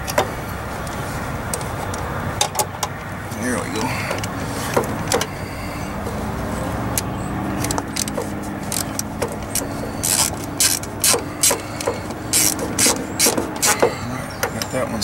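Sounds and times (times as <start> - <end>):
short scraping rasps: 7.6 - 14.8.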